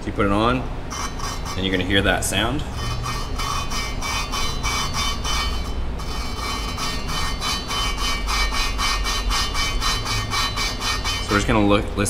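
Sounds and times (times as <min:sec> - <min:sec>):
valve grinding against seat: 0:00.9 - 0:11.5.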